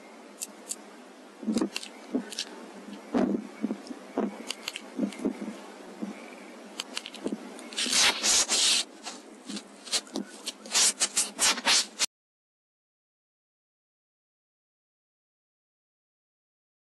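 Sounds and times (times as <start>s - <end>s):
handling clicks and scrapes: 6.8s - 12.1s.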